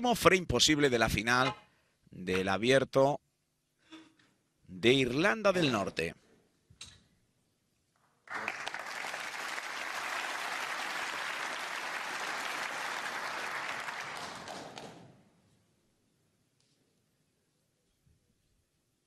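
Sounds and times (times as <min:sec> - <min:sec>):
audience applauding: 0:08.3 - 0:15.1.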